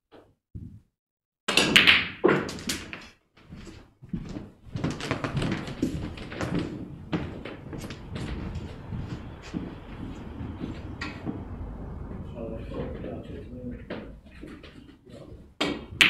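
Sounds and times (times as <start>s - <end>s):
cue striking snooker ball: 1.5s - 2.6s
shuffling footsteps: 3.4s - 15.6s.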